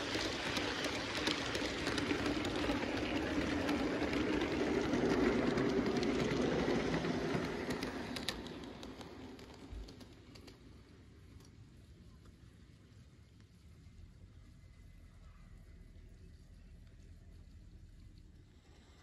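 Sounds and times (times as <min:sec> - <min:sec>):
model train wheels rumbling: 0:00.0 - 0:12.4.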